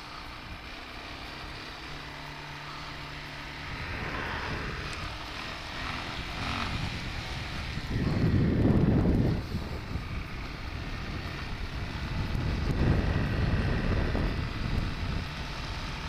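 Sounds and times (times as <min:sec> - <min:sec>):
engine running steadily: 0:00.0 - 0:16.0
loud rushing noise: 0:03.5 - 0:10.0.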